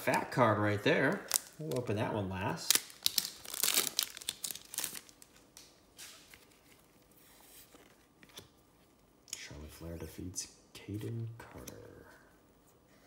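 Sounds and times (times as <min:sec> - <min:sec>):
foil wrapper tearing and crinkling: 0:01.2 - 0:01.8, 0:02.6 - 0:05.4
cards rustling: 0:02.7 - 0:08.6.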